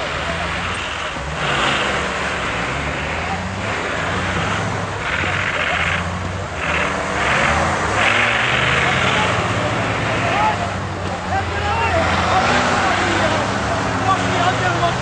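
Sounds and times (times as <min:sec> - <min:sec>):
off-road engine revving unevenly: 0:00.0 - 0:15.0.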